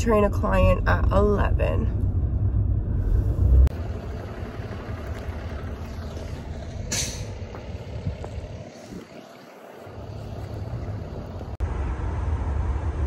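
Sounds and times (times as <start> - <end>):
rumble inside moving car: 0.0 - 13.0
street noise rumble: 0.0 - 13.0
short hiss: 6.9 - 7.4.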